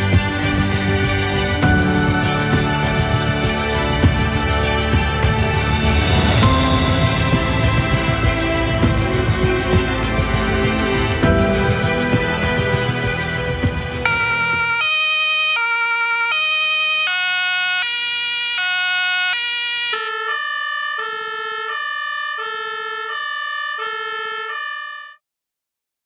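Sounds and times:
two-tone emergency siren: 0:14.0 - 0:25.2.

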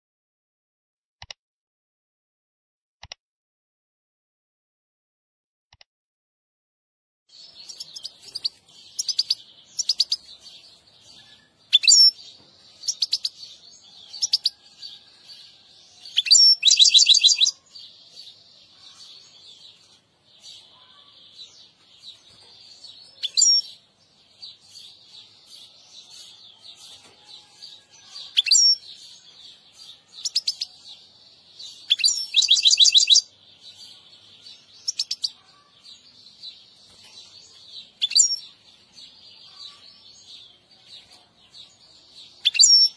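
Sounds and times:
goldfinch singing: 0:07.4 - 0:14.6, 0:27.8 - 0:38.6.

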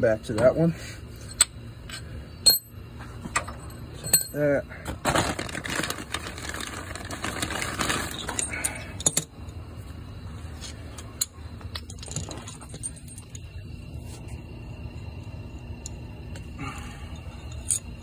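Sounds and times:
metal washers clinking in hand: 0:01.2 - 0:04.5, 0:08.1 - 0:09.4, 0:11.0 - 0:13.5, 0:17.1 - 0:18.0
rummaging in a toolbox: 0:03.0 - 0:09.3, 0:11.7 - 0:13.5.

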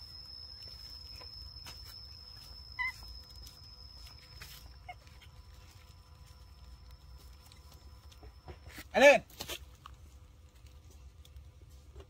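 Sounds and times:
high-pitched whine: 0:00.0 - 0:09.2
monkey squeaking: 0:02.4 - 0:05.4.

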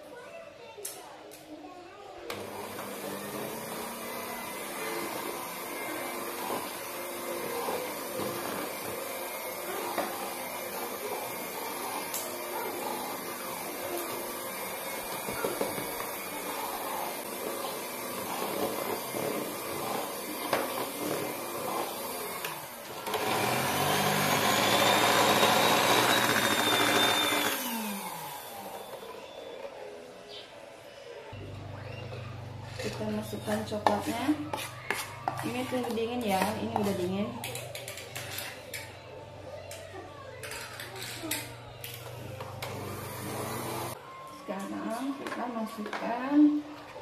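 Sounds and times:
electric hand mixer whirring: 0:02.3 - 0:29.8, 0:41.8 - 0:44.0.

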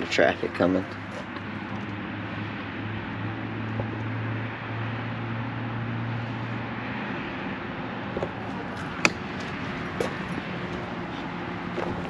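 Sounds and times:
cars passing: 0:00.0 - 0:12.0
engine hum: 0:00.0 - 0:12.0
small knocks: 0:08.2 - 0:10.9.

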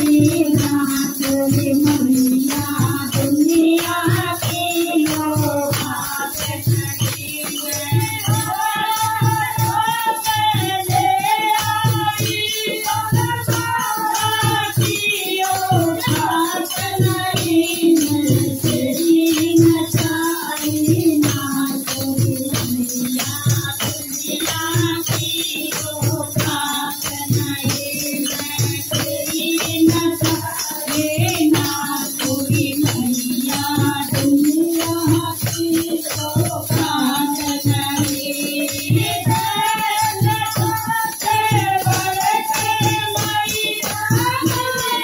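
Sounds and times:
hand drum beat: 0:00.0 - 0:45.0
jingling hand percussion: 0:00.0 - 0:45.0
woman singing into microphone: 0:00.0 - 0:45.0.

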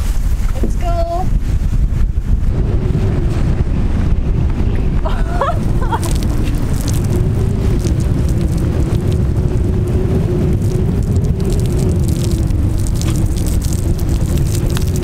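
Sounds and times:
wind buffeting microphone: 0:00.0 - 0:15.0
water splashing from shower head: 0:05.8 - 0:15.0.

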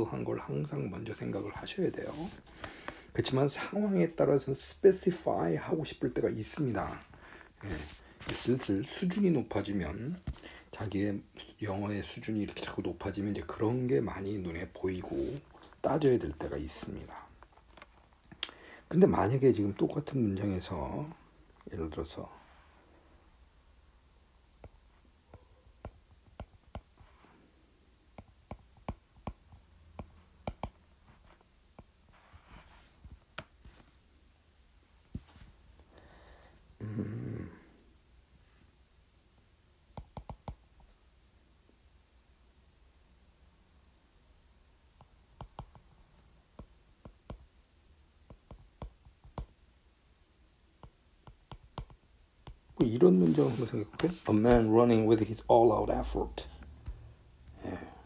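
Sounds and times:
stylus tapping on glass screen: 0:28.2 - 0:30.8.

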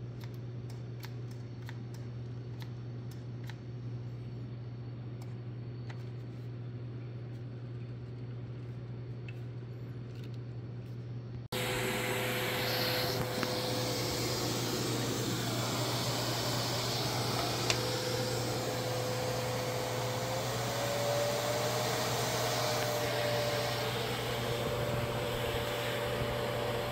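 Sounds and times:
grooming vacuum whirring: 0:11.5 - 0:26.9.

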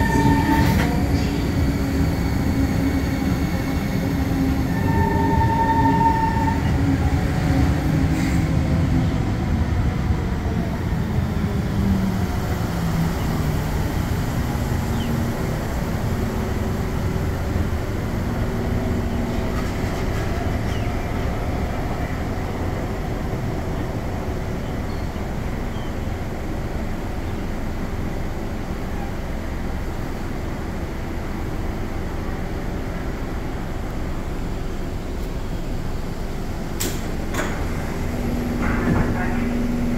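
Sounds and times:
train wheels rumbling on rail: 0:00.0 - 0:39.9
train doors clicking open: 0:36.7 - 0:39.8.

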